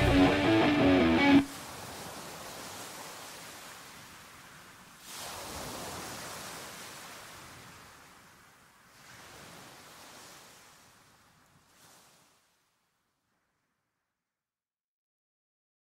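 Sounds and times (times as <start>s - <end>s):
ocean waves washing ashore: 0.0s - 12.6s.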